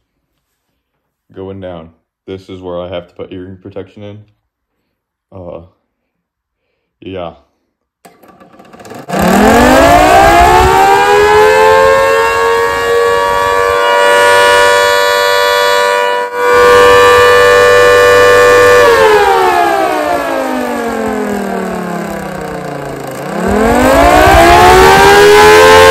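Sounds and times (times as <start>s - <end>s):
two-tone siren wailing: 9.1s - 25.9s.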